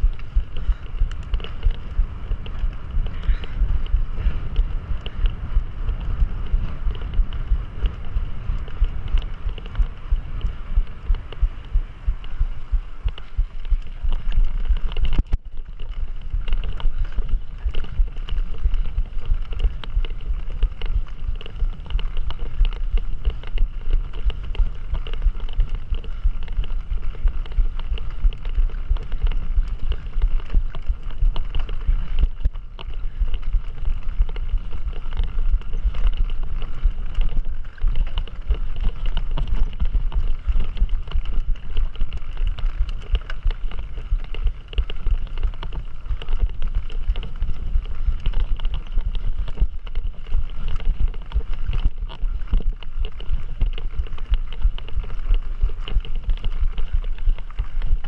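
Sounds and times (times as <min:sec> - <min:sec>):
bike clicks and rattles: 0:00.0 - 0:58.0
wind buffeting microphone: 0:00.0 - 0:58.0.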